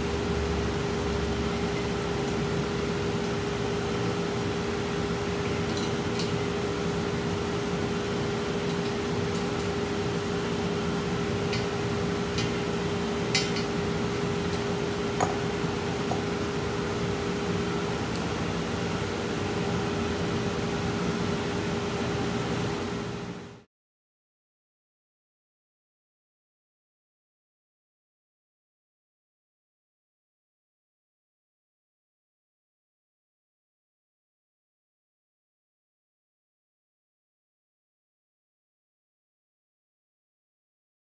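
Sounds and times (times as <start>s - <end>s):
steady mechanical hum: 0.0s - 23.7s.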